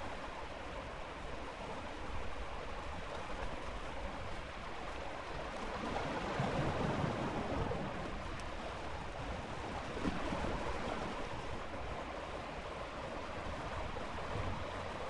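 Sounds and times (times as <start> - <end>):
ocean waves washing in: 0.0 - 15.0.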